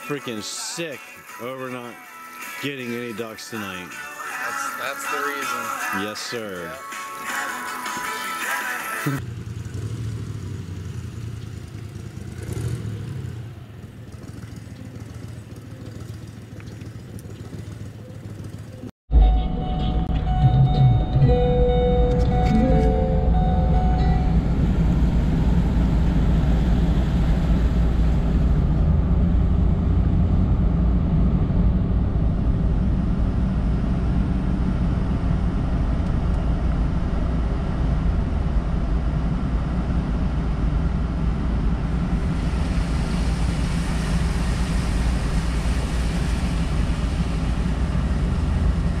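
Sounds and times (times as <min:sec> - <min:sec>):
vehicle road rumble: 0:09.1 - 0:49.0
tyres hissing on wet road: 0:42.2 - 0:49.0.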